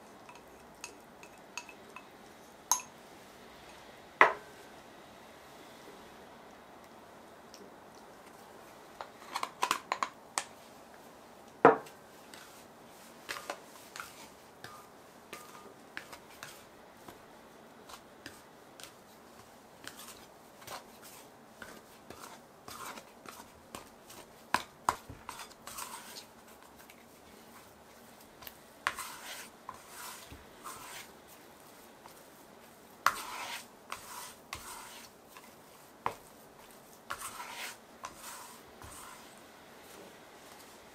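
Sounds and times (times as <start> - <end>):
sticky dough worked in bowl: 11.8 - 40.9.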